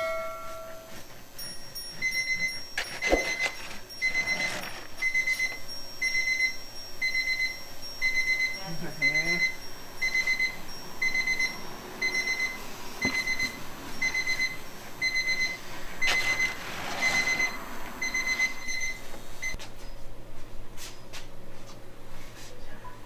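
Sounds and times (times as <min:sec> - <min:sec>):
electronic alarm beeping: 0:00.0 - 0:19.6
knife scraping through cake: 0:02.8 - 0:05.1.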